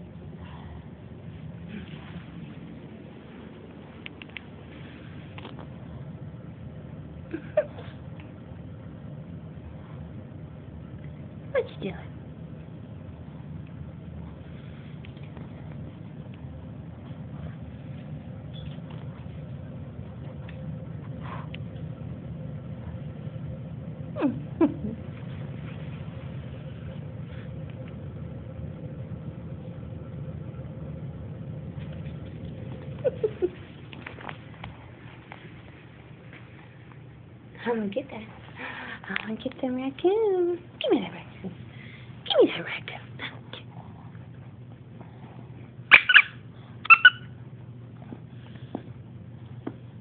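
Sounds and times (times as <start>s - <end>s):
steady low hum: 0.0s - 50.0s
small dog yipping: 45.9s - 47.4s.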